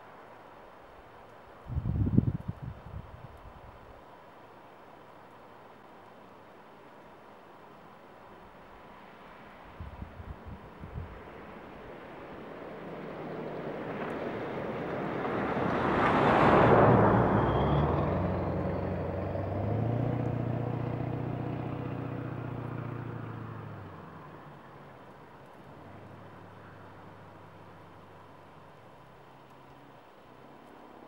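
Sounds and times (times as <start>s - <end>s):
vehicle driving past: 12.8s - 28.8s.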